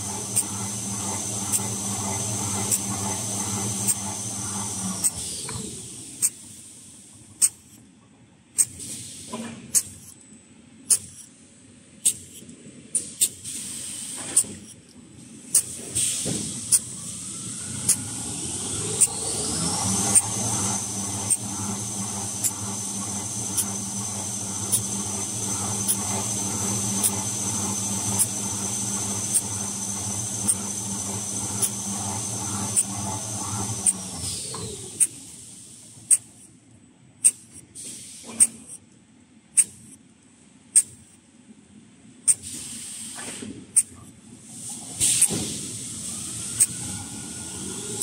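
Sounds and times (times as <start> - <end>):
machine whine: 0.0 - 6.3, 14.2 - 35.5, 45.0 - 48.0
sharp machine clicks: 7.4 - 7.8, 15.5 - 15.8, 16.6 - 17.0, 17.7 - 20.4, 21.3 - 21.5, 22.3 - 24.1, 24.7 - 26.3, 32.7 - 35.2, 36.1 - 36.5, 39.6 - 40.0, 40.8 - 41.1, 46.6 - 46.8.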